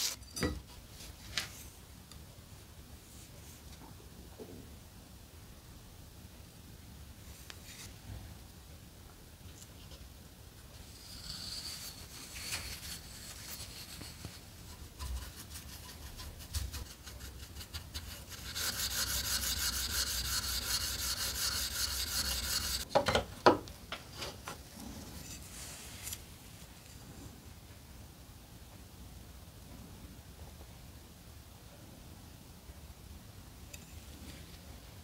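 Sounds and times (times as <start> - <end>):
steel wool scrubbing metal: 10.8 - 22.9.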